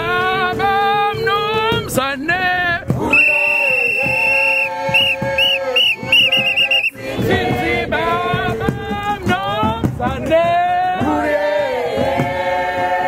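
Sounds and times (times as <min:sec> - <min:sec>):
group of people singing: 0:00.0 - 0:13.0
whistle blasts: 0:03.1 - 0:07.0.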